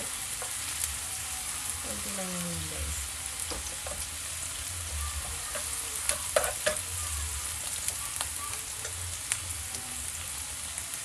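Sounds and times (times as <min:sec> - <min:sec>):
garlic sizzling in a pan: 0:00.0 - 0:11.0
metal spoon scraping a pan: 0:05.2 - 0:07.0.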